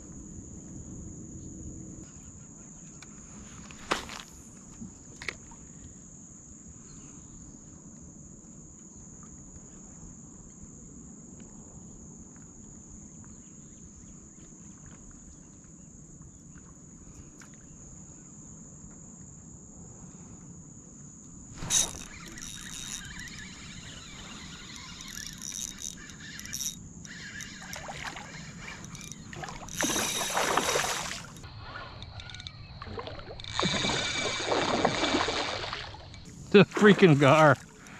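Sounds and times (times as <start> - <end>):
high-pitched insect buzz: 21.6 - 36.3
water splashing: 27.1 - 37.9.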